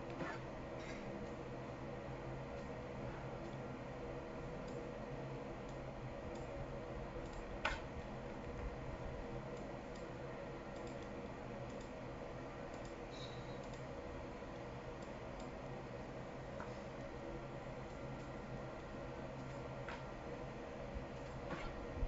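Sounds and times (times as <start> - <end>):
steady low hum: 0.0 - 22.0
computer mouse clicking: 7.2 - 7.5, 10.7 - 12.0, 13.6 - 13.9.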